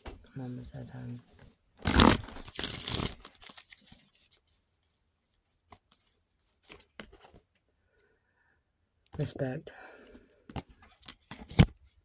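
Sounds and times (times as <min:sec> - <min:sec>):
cards rustling: 0:01.8 - 0:04.6.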